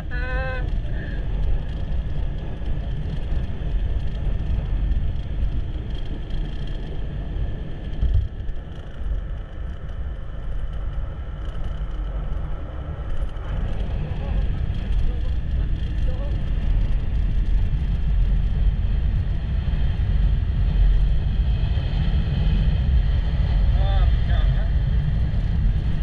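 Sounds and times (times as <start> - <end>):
vehicle engine rumble: 0.0 - 26.0
wind noise on microphone: 0.0 - 26.0.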